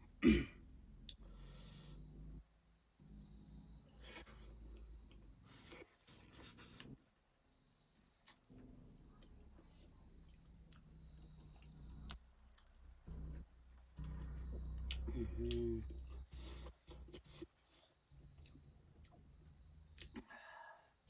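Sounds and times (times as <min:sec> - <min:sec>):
high-pitched background drone: 0:13.0 - 0:17.5.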